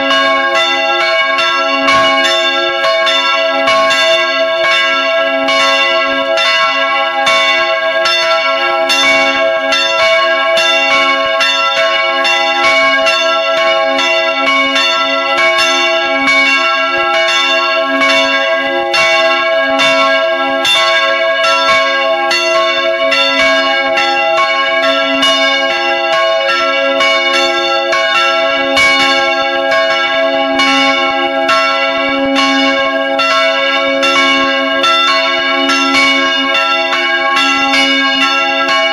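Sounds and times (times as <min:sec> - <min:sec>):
church bells ringing: 0:00.0 - 0:38.9.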